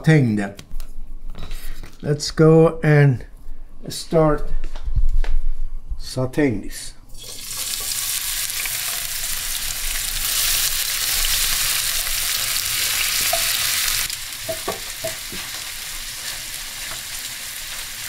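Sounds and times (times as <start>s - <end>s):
onions sizzling in hot oil: 7.2s - 18.0s.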